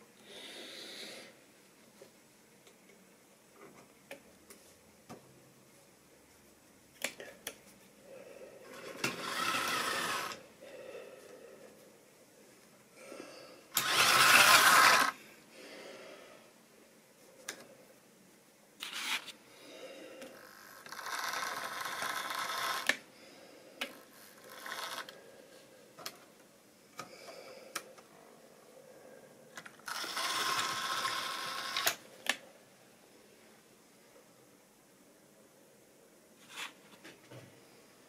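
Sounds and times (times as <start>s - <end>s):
model locomotive motor whirring: 8.8s - 10.4s, 13.7s - 15.2s, 20.6s - 23.0s, 24.1s - 25.2s, 29.8s - 32.0s.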